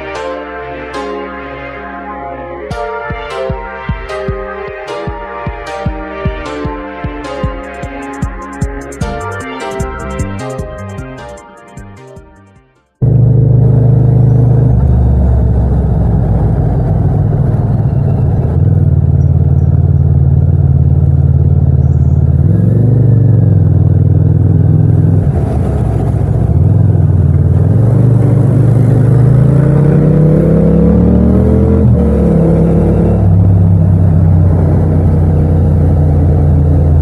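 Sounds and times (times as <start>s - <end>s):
motorcycle engine running: 13.0s - 37.0s.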